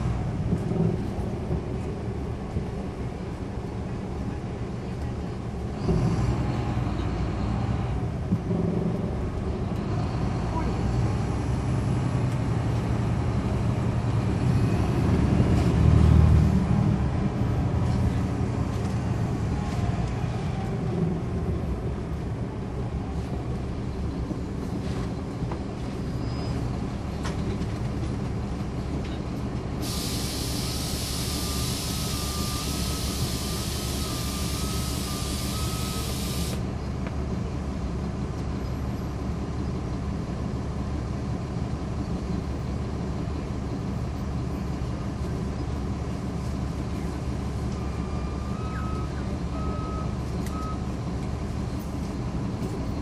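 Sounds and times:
bus diesel engine running: 0:00.0 - 0:53.0
air hissing: 0:29.8 - 0:36.6.

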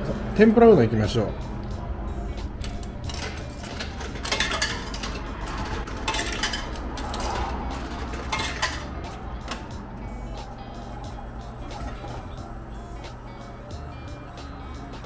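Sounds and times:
steady low hum: 0:00.0 - 0:15.0
coins dropping into vending machine: 0:02.6 - 0:09.7.

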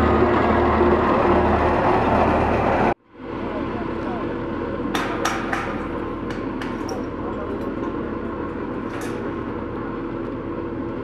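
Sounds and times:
steady low hum: 0:00.0 - 0:11.0
knocks on steel railings: 0:04.9 - 0:07.1.

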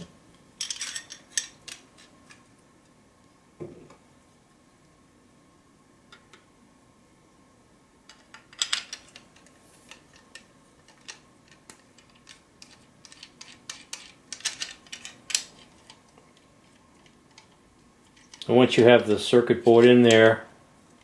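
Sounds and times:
metal parts clicking and clinking: 0:00.6 - 0:02.4, 0:08.1 - 0:16.0.

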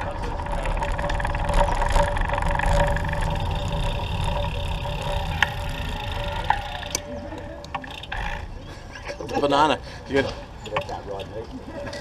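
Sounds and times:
steady whine: 0:00.0 - 0:08.3
wind and road rumble: 0:00.0 - 0:09.6.

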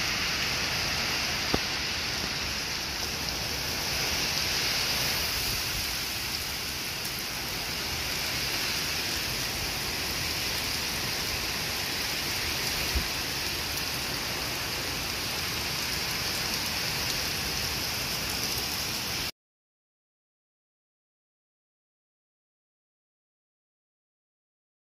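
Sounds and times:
heavy rain pouring: 0:00.0 - 0:19.3.

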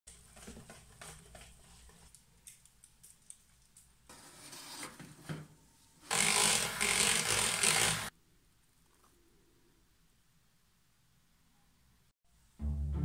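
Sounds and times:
electric hand mixer running: 0:06.1 - 0:08.1.

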